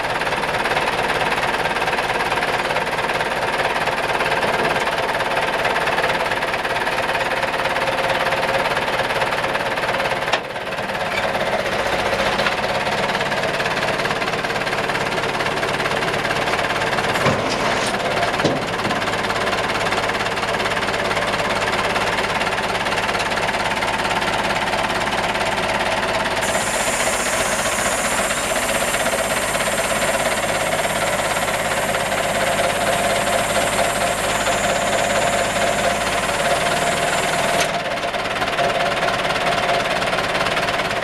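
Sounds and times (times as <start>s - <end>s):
truck engine running: 0.0s - 41.0s
high hiss: 26.4s - 37.6s.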